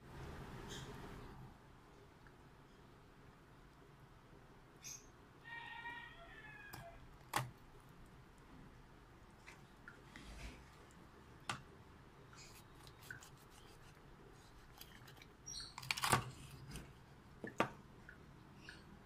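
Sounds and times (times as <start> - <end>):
knife cutting and scraping: 12.4 - 16.9.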